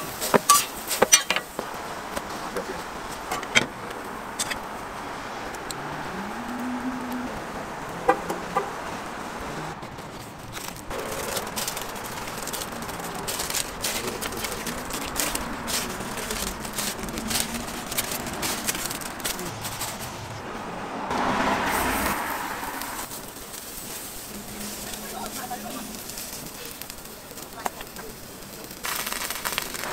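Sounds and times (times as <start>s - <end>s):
food sizzling: 0.0s - 2.4s, 4.0s - 29.9s
metal tongs clinking: 0.5s - 1.5s
spatula scraping a griddle: 23.1s - 27.4s.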